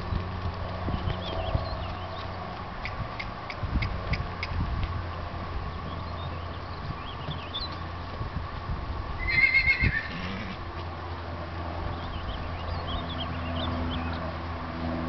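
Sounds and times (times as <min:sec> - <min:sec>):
horse whinnying: 0:09.2 - 0:10.6.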